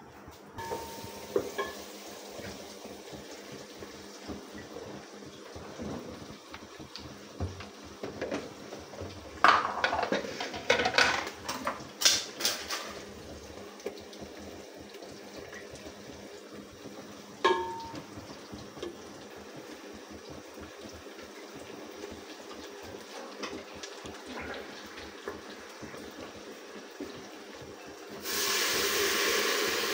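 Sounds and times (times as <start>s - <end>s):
cookware and utensils clattering: 0.6s - 2.6s, 7.5s - 13.2s, 17.4s - 18.1s.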